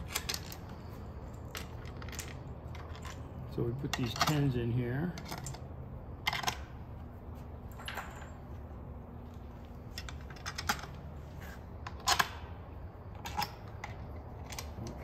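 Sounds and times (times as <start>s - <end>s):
metal bolts clicking: 0.0s - 6.8s, 11.8s - 15.0s
steady low hum: 0.0s - 15.0s.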